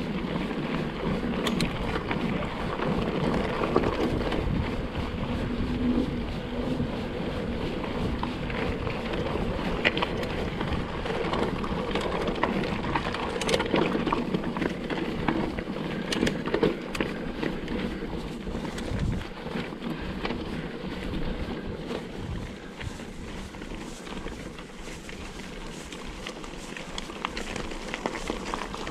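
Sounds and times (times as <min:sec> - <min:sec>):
wind on microphone: 0:00.0 - 0:13.6, 0:17.7 - 0:26.0
bike knocks and rattles: 0:00.0 - 0:28.9
tyres running over stones: 0:08.1 - 0:28.9.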